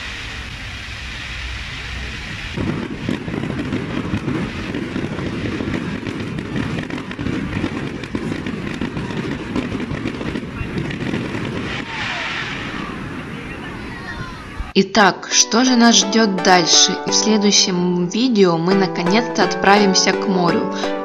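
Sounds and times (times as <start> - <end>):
fireworks crackling: 0.0 - 14.8.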